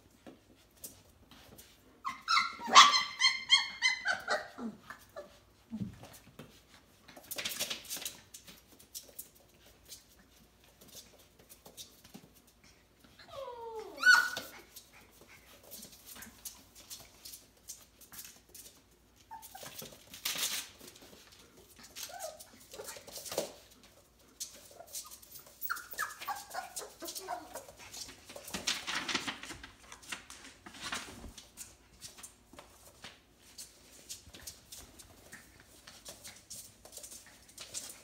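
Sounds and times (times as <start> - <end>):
puppies scuffling: 0.0 - 38.0
puppies whimpering and yelping: 2.0 - 5.4, 13.2 - 14.8, 19.2 - 19.9, 24.7 - 27.8.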